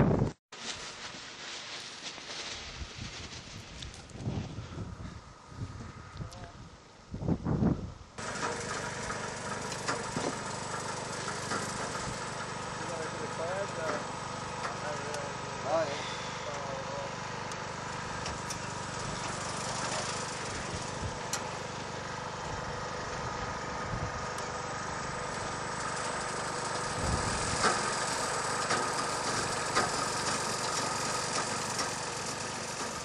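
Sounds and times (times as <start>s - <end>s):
small engine running: 8.2s - 33.0s.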